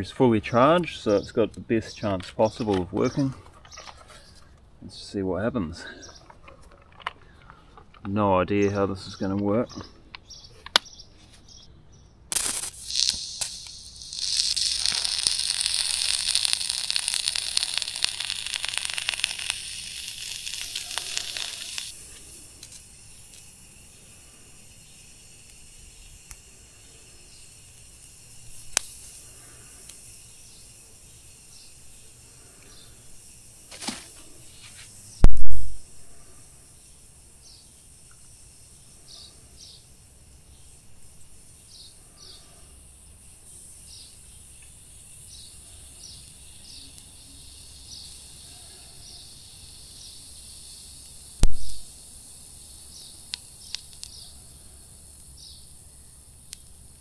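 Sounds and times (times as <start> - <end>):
electric arc crackling and sizzling: 12.3 - 57.0.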